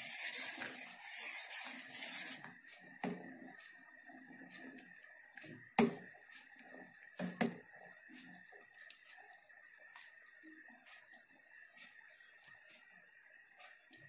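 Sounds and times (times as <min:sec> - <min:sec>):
spoon stirring milk: 0:00.0 - 0:02.5.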